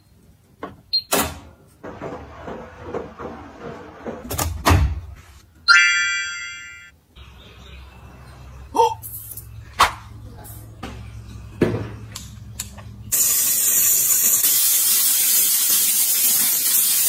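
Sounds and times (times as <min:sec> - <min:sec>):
washing machine door closing: 0:01.1 - 0:05.1
ringing electronic tone: 0:05.7 - 0:06.9.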